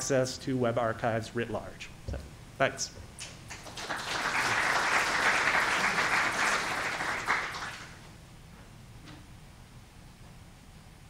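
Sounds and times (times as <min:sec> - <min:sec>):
audience applauding: 0:03.5 - 0:08.0.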